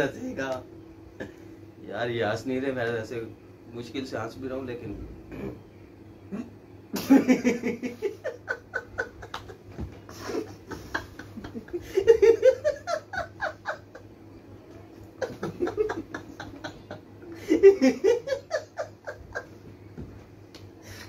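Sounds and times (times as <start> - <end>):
men laughing: 7.0 - 14.2, 15.0 - 19.8.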